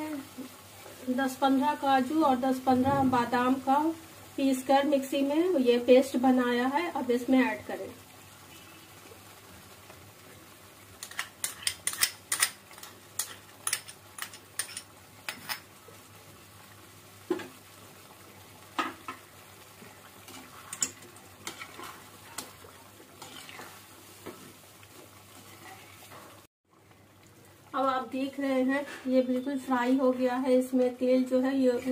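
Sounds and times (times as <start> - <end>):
chicken sizzling in oil: 0.0 - 31.9
metal spoon scraping a pan: 11.0 - 15.7, 20.3 - 22.5, 23.2 - 23.8.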